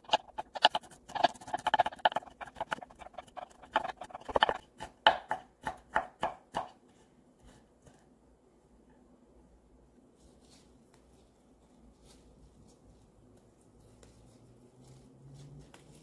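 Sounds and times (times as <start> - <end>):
knife blade scraping board: 0.0 - 4.6
knife chopping on wooden board: 0.3 - 6.8.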